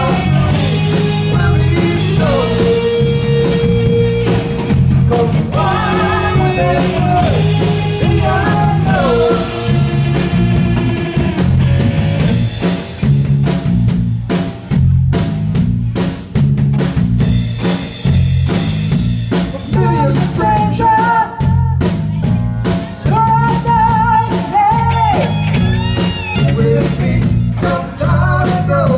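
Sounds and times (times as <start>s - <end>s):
electric guitar: 0.0s - 13.8s, 18.5s - 28.9s
keyboard: 0.0s - 15.2s, 17.3s - 28.9s
bass line: 0.0s - 28.9s
drum kit beat: 0.0s - 28.9s
high singing voice: 5.1s - 10.0s, 23.1s - 28.9s.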